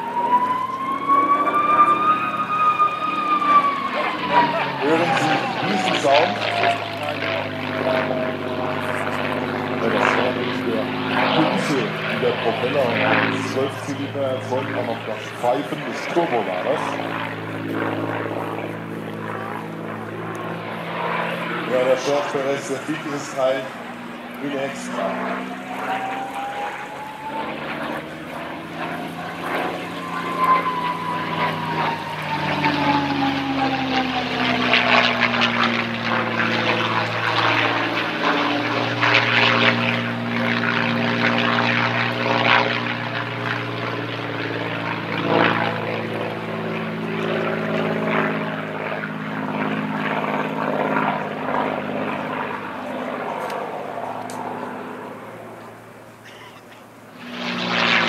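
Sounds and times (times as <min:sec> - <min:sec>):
propeller plane engine in flight: 0:00.0 - 0:58.0
thin high whine: 0:22.0 - 0:34.2.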